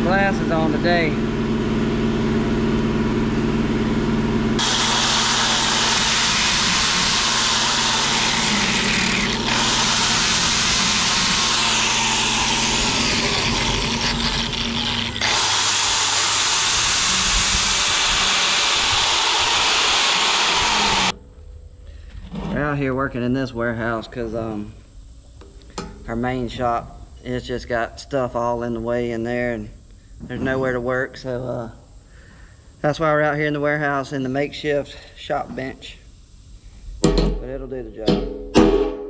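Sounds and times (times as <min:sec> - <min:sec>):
angle grinder cutting metal: 0:04.6 - 0:21.1.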